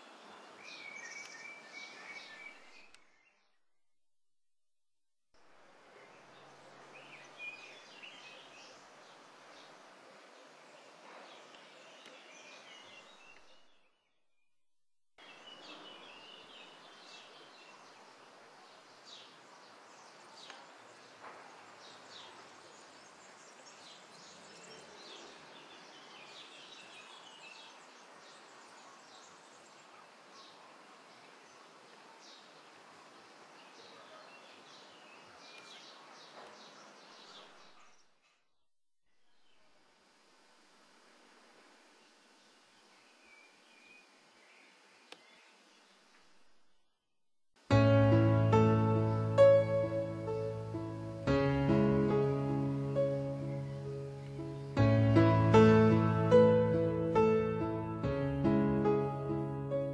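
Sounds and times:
small birds chirping: 0:00.0 - 0:03.6, 0:05.9 - 0:14.2, 0:15.2 - 0:38.6, 0:41.9 - 0:47.0
steady background hiss: 0:05.4 - 0:13.7, 0:15.2 - 0:37.4, 0:39.3 - 0:46.7, 0:47.6 - 0:59.9.

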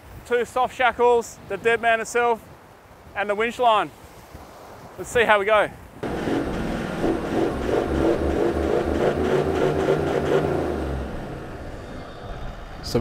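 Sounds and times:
engine revving under load: 0:06.0 - 0:13.0
wheels spinning in sand: 0:06.0 - 0:13.0.

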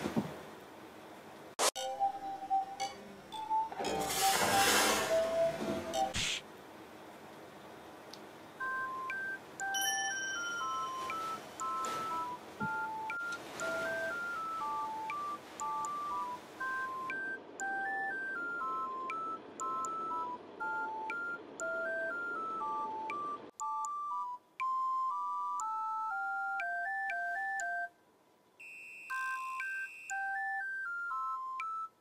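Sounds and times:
beep-like electronic melody: 0:10.6 - 0:27.9.

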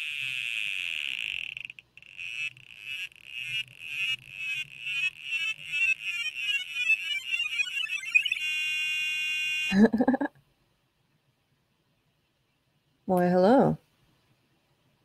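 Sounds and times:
high electronic buzz: 0:00.0 - 0:09.9
short warbling beeps: 0:04.0 - 0:08.8.

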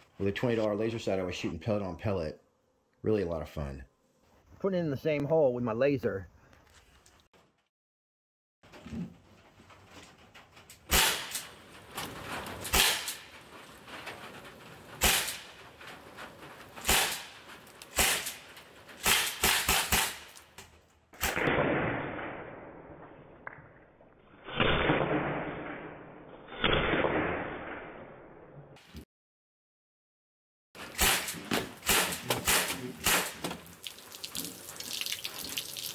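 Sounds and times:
air rifle shots: 0:10.9 - 0:11.4, 0:12.7 - 0:13.3, 0:15.0 - 0:15.5, 0:16.8 - 0:18.4, 0:19.0 - 0:20.3, 0:30.8 - 0:33.4.

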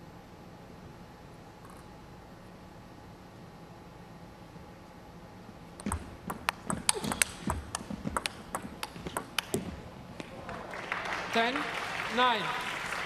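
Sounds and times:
table tennis ball hits: 0:05.8 - 0:10.3
applause: 0:10.3 - 0:13.0.

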